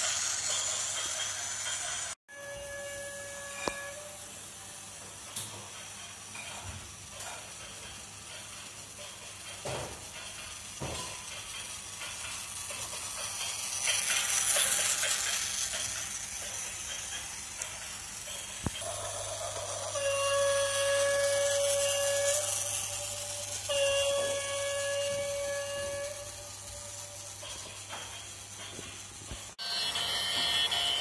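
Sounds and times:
toy train whirring hiss: 0.0s - 31.0s
electronic train horn blasts: 2.3s - 4.3s, 18.8s - 26.6s.

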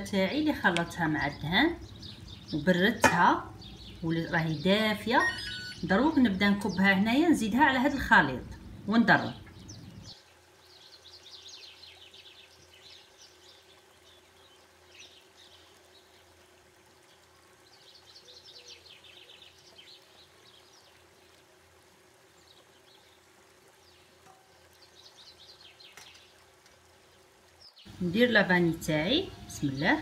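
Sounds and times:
low steady hum: 0.0s - 30.0s
faint high-pitched chirping: 3.6s - 6.8s.

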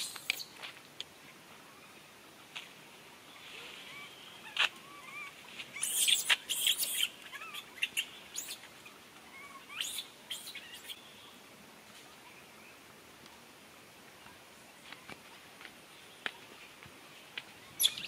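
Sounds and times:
small animals chirping and squeaking: 0.0s - 0.6s, 3.4s - 11.0s, 17.6s - 18.0s.

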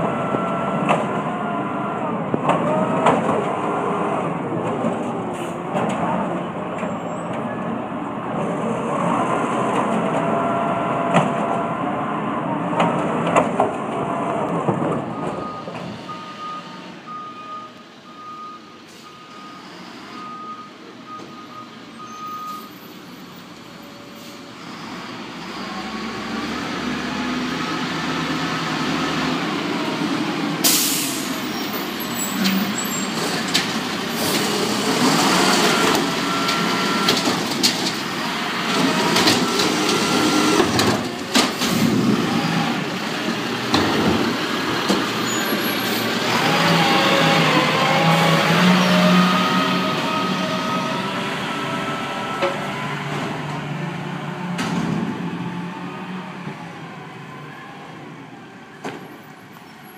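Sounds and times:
garbage truck engine: 0.0s - 59.9s
air brakes hissing: 18.8s - 20.1s, 30.6s - 33.2s.

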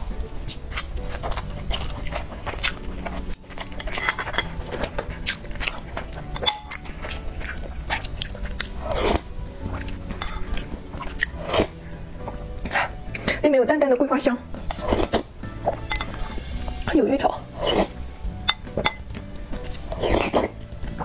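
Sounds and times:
background music: 0.0s - 21.0s
chewing and smacking: 0.1s - 13.4s, 14.6s - 21.0s
slurping from a spoon: 0.5s - 12.0s, 14.6s - 20.6s.

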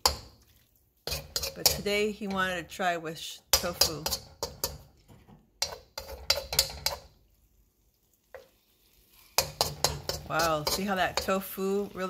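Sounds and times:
metal spatula scraping a wok: 1.0s - 2.6s, 3.5s - 7.2s, 8.3s - 12.0s.

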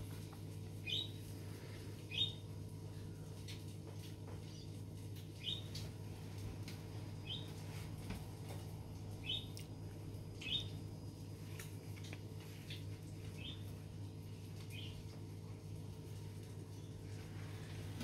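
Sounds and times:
steady low hum: 0.0s - 18.0s
small bird chirping: 0.8s - 1.2s, 2.1s - 2.4s, 5.4s - 5.8s, 7.2s - 7.5s, 9.2s - 9.6s, 10.4s - 10.8s, 12.7s - 13.7s, 14.6s - 15.0s.

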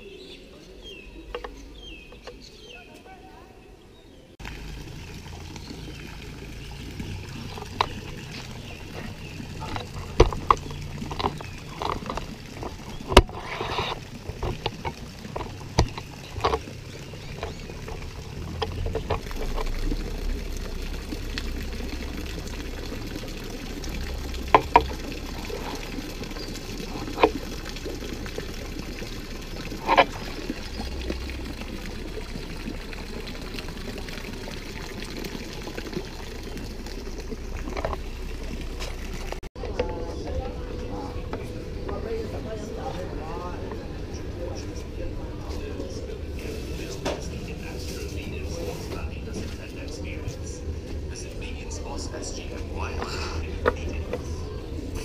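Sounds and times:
running trickling water: 0.0s - 55.0s
sharp clicks and knocks: 8.9s - 16.7s, 24.4s - 25.7s.

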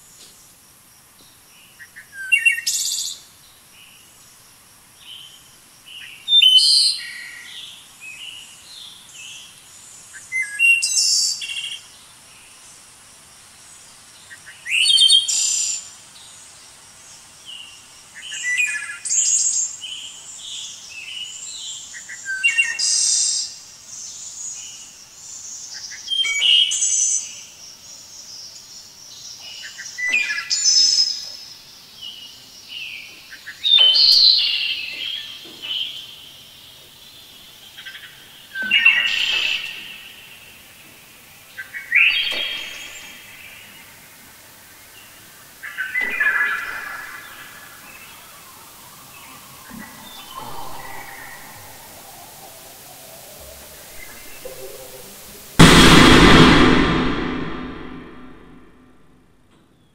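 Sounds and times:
quiet bird chirps: 45.8s - 55.6s.

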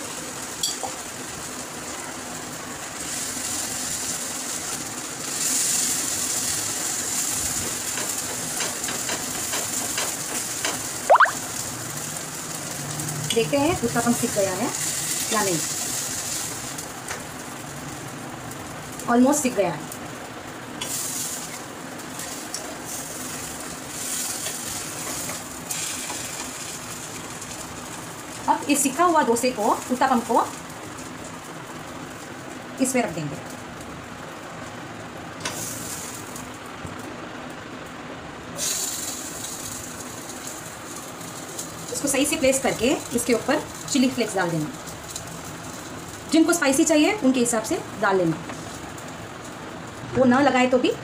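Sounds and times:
food sizzling in a pan: 0.0s - 37.4s, 38.4s - 51.0s.

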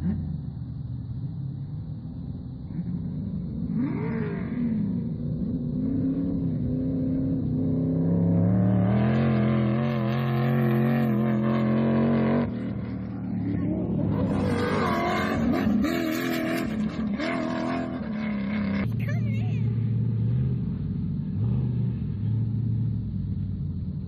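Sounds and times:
off-road engines revving: 0.0s - 0.8s, 1.6s - 24.0s.

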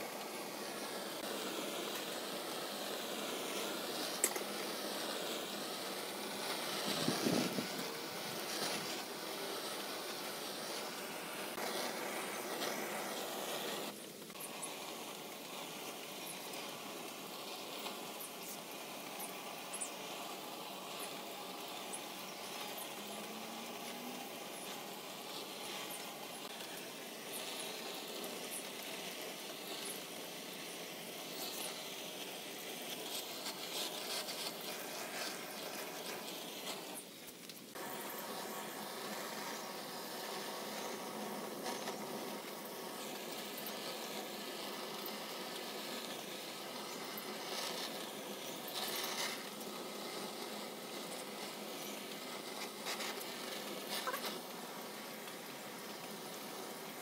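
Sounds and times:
butane torch hissing: 0.0s - 57.0s.

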